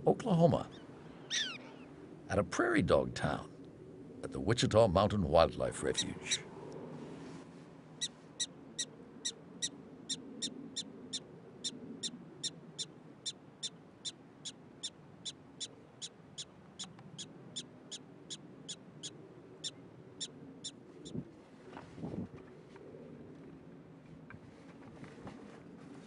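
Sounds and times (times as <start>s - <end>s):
prairie dog barking: 1.3s - 1.9s.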